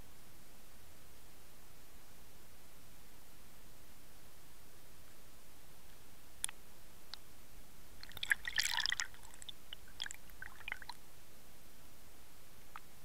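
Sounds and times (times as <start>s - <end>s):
drip-like ticks: 8.0s - 11.0s
water bubbling and crackling: 8.0s - 11.0s.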